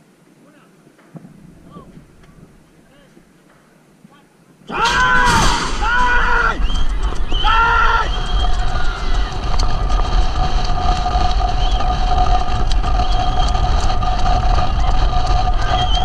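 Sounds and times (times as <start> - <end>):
wind rushing over microphone: 4.7 - 16.0
scattered clicks: 5.3 - 16.0.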